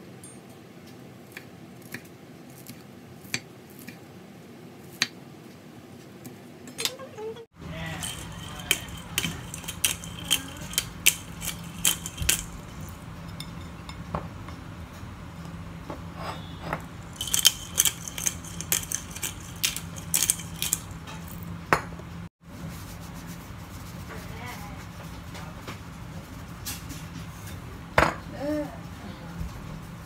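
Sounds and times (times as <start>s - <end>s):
pepper grinder clicking: 8.0s - 13.0s, 17.1s - 21.4s.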